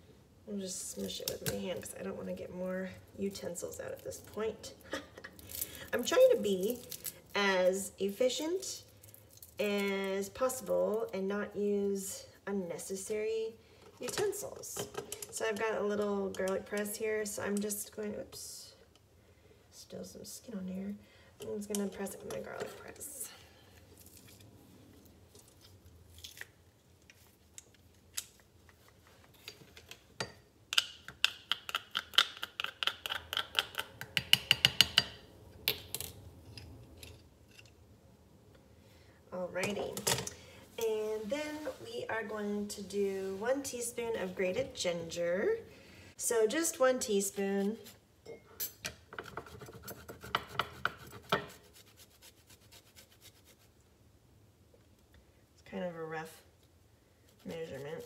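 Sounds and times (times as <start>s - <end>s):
ginger rasping on metal grater: 57.4s - 58.0s.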